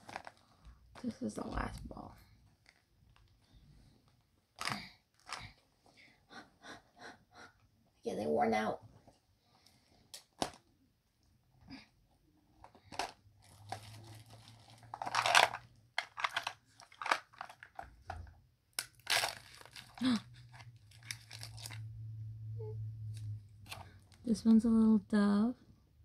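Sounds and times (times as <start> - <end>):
plastic wrapping crinkling and tearing: 0.0 - 1.9, 12.8 - 17.9, 18.7 - 22.0.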